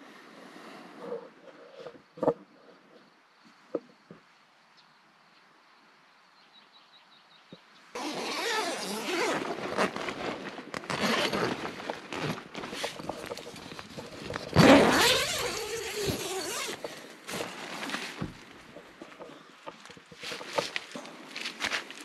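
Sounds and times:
zipper rasping: 0:08.0 - 0:17.8
nylon fabric rustling: 0:08.0 - 0:19.2.

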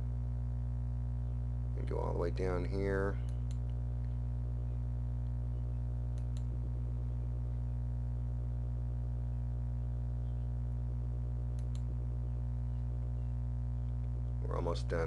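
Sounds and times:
low electrical hum: 0:00.0 - 0:15.0
computer mouse clicks: 0:11.5 - 0:11.9.

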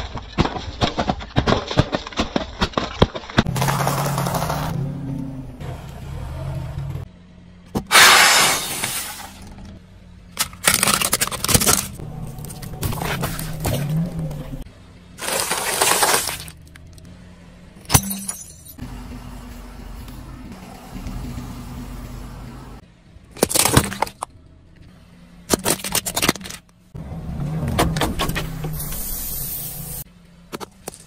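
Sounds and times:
car tyre crushing objects: 0:00.0 - 0:04.8, 0:07.6 - 0:17.1, 0:23.2 - 0:26.9
sharp crack: 0:07.8 - 0:09.4.

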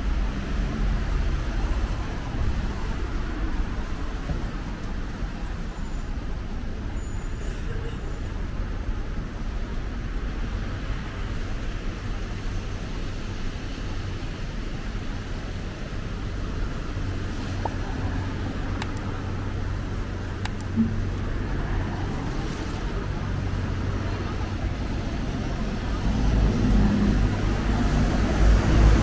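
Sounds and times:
traffic on wet roads: 0:00.0 - 0:29.0
engine low hum: 0:15.9 - 0:29.0.

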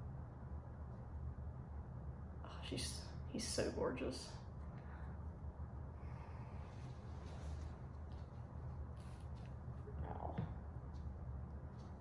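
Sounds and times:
faint room hum: 0:00.0 - 0:12.0.

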